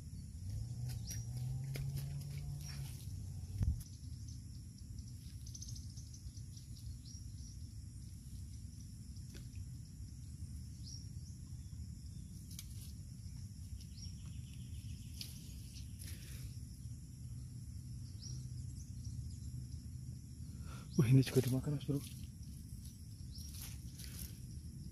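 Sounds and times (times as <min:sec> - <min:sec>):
low even rumble: 0:00.0 - 0:05.1
high insect drone: 0:00.0 - 0:24.9.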